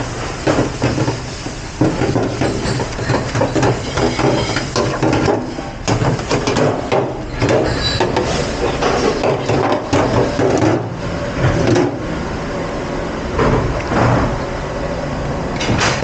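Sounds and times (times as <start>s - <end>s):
steady machine hum: 0.0s - 16.0s
dishes and utensils clattering: 1.8s - 10.8s.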